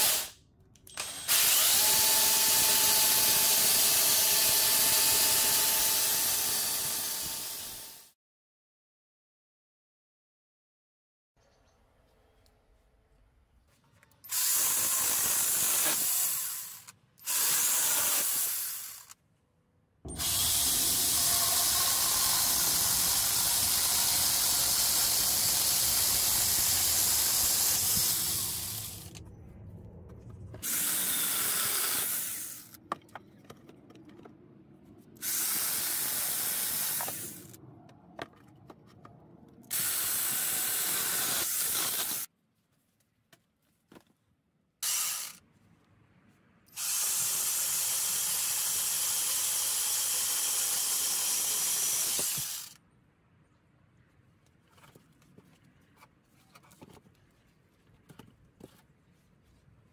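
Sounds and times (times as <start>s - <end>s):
chainsaw grinder cutting logs: 1.0s - 8.0s, 14.3s - 19.2s, 20.1s - 29.2s, 30.6s - 32.8s, 35.2s - 37.6s, 44.8s - 45.4s, 46.8s - 52.8s.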